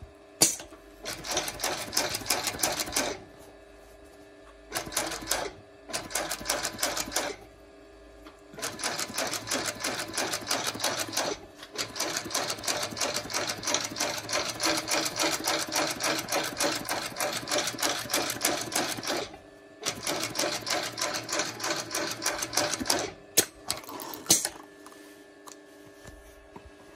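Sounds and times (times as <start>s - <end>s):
sewing machine stitching: 1.0s - 3.2s, 4.7s - 7.4s, 8.6s - 23.2s.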